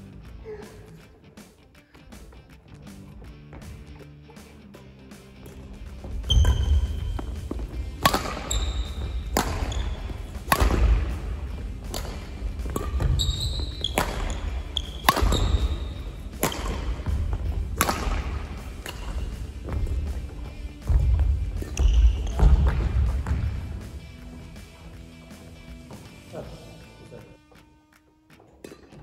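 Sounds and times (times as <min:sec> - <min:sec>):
shoe squeaks on court: 0:05.4 - 0:20.1, 0:21.6 - 0:23.5
racket hitting shuttlecock: 0:05.4 - 0:24.7, 0:28.5 - 0:29.0.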